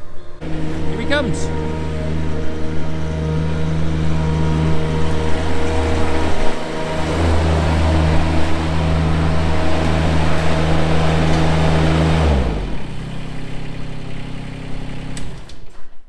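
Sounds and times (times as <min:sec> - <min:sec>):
loader engine running: 0:00.0 - 0:15.8.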